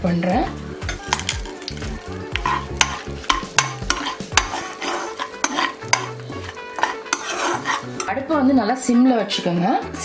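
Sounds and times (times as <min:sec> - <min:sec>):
spices sizzling in butter: 0:00.0 - 0:08.4
metal spoon scraping a pan: 0:00.8 - 0:08.3.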